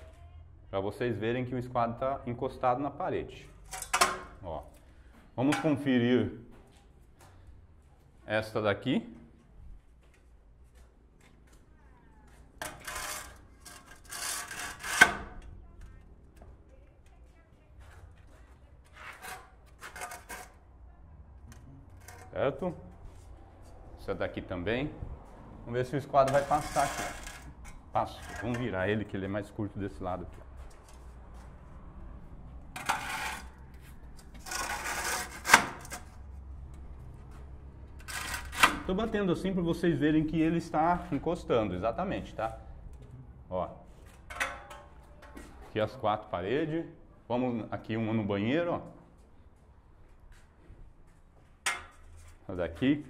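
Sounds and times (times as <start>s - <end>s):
metal square scraping on wall: 12.6s - 15.5s, 18.9s - 20.6s, 21.9s - 22.4s, 26.2s - 28.8s, 32.7s - 33.6s, 34.2s - 36.2s, 38.0s - 38.9s.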